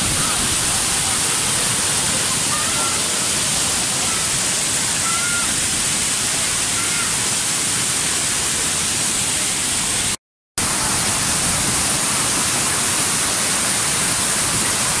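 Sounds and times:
waterfall rushing: 0.0 - 15.0.

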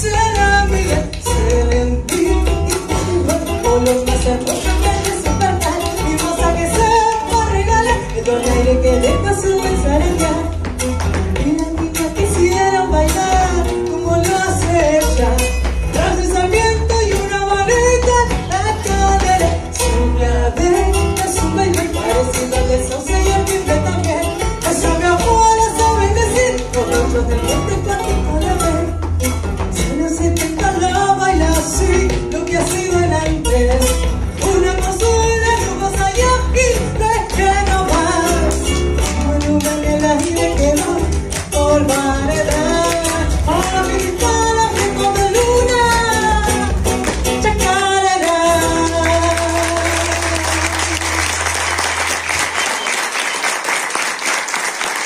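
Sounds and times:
woman singing into a microphone: 0.0 - 10.7, 11.4 - 29.0, 29.8 - 38.6, 39.2 - 46.8, 47.4 - 51.1
instrumental accompaniment: 0.0 - 53.8
audience applauding: 48.8 - 55.0.

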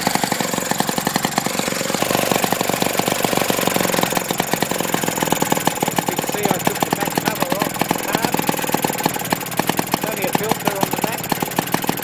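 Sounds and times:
lawn mower engine running: 0.0 - 12.0.

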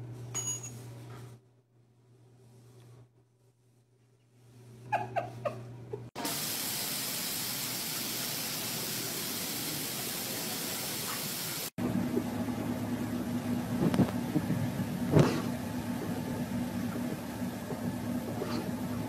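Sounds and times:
car engine idling: 11.8 - 19.0.

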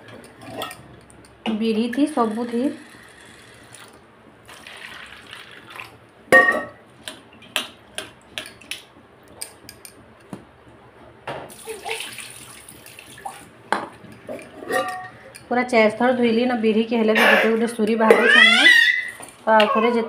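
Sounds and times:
water pouring into bowl: 3.6 - 6.0, 11.5 - 13.5
steel bowl clanging: 14.1 - 15.5.

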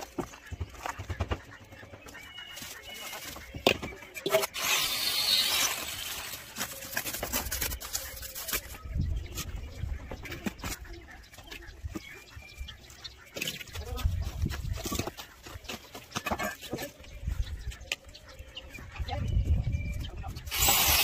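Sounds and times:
trowel scraping concrete: 4.3 - 8.8, 20.5 - 21.0.

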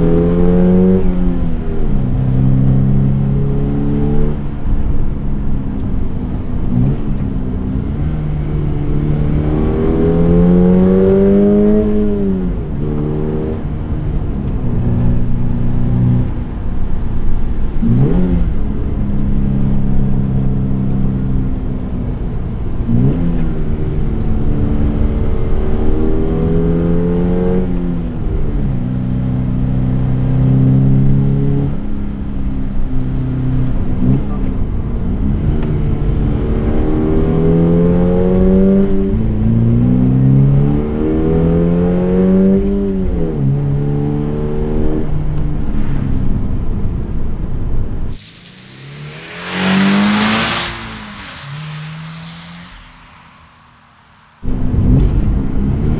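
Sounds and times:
car engine revving: 0.0 - 5.1, 47.9 - 55.9.

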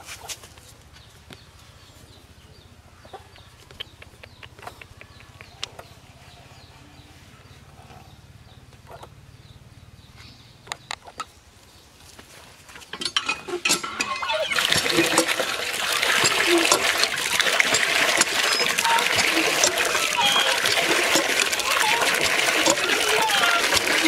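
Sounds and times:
water pump handle clanking: 12.9 - 24.0
water gushing into metal basin: 13.1 - 24.0.

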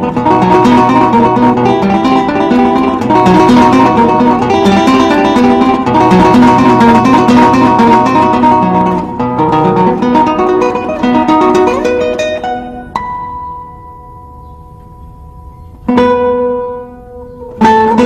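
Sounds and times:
flamenco acoustic guitar: 0.0 - 18.0.

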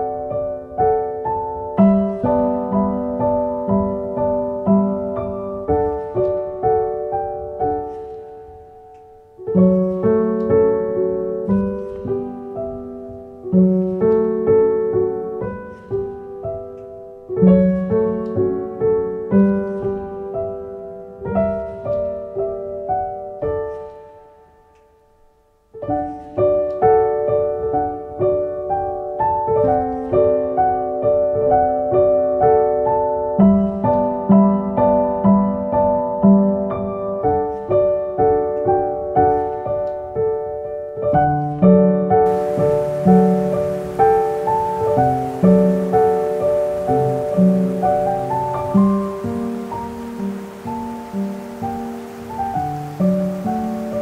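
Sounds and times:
slow piano melody: 0.0 - 54.0.

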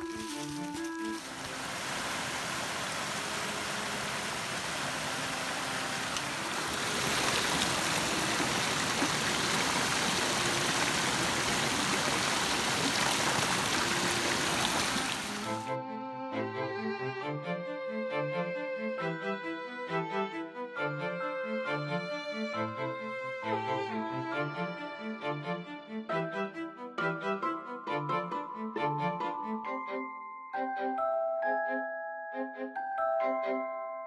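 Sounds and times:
water gushing and splashing on rocks: 0.0 - 15.6.

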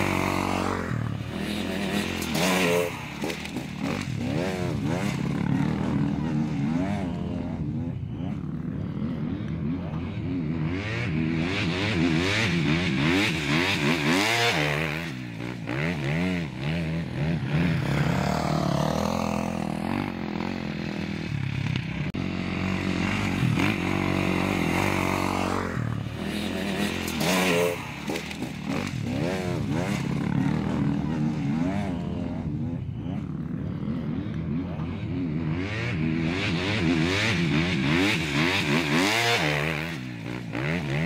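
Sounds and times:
dirt bike engines revving: 0.0 - 41.0.

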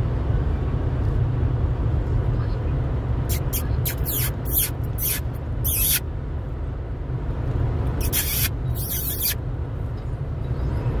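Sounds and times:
car cabin road rumble: 0.0 - 11.0
short hissing swishes: 3.3 - 6.0, 8.0 - 9.4.

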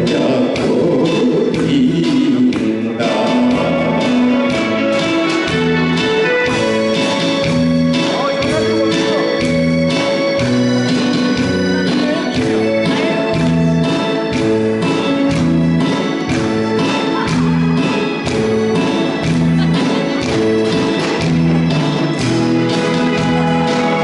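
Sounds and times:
man singing: 0.0 - 4.6
trot backing track over speakers: 0.0 - 24.0.

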